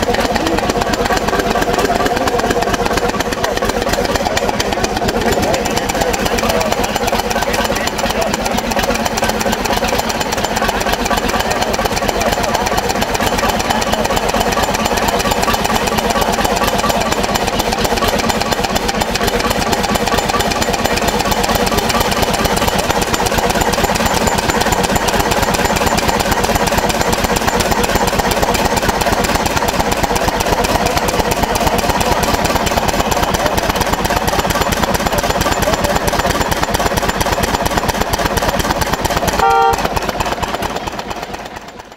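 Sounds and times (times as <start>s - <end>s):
diesel engine running: 0.0s - 41.9s
brief pitched tone: 39.4s - 39.9s.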